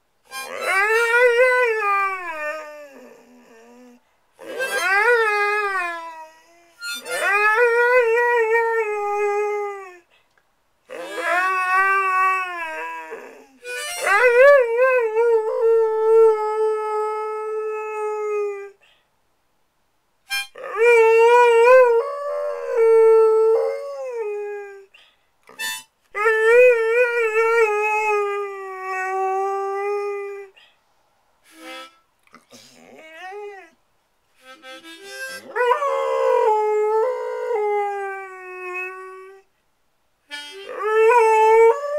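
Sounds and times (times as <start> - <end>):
harmonica: 0.3 - 1.8, 4.4 - 5.7, 6.8 - 7.6, 13.6 - 14.5, 20.3 - 20.6, 25.5 - 26.0, 31.5 - 32.7, 34.4 - 35.5, 40.3 - 40.8
dog howling: 0.5 - 6.5, 10.9 - 16.0.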